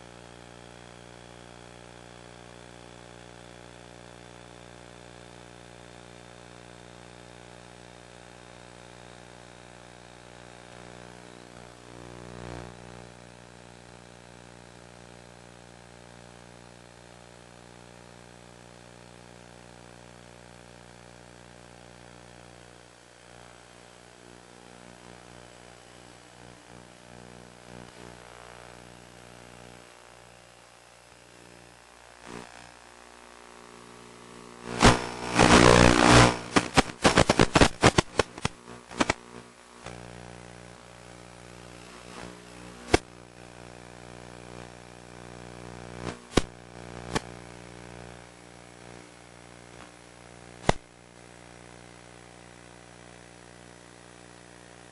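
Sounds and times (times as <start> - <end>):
dense clicking and crackling: 34.7 - 40.0.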